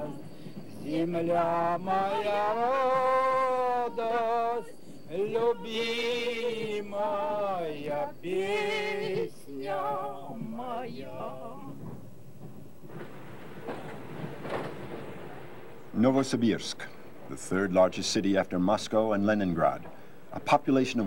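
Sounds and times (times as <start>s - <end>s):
person singing unaccompanied: 0.0s - 11.9s.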